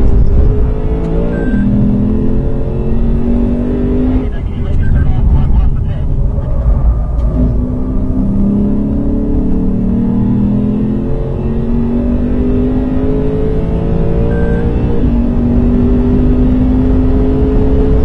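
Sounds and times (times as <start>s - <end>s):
car engine accelerating: 0.0s - 18.0s.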